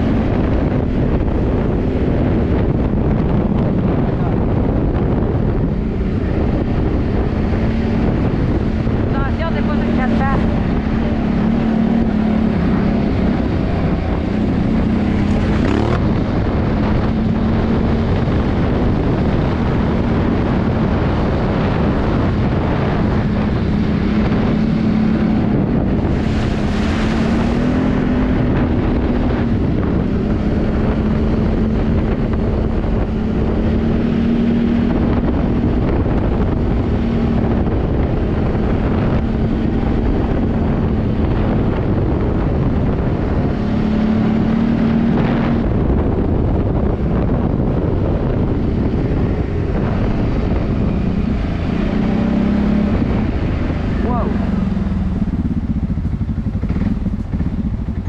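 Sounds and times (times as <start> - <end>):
atv engine running: 0.0 - 58.0
wind noise on microphone: 0.0 - 58.0.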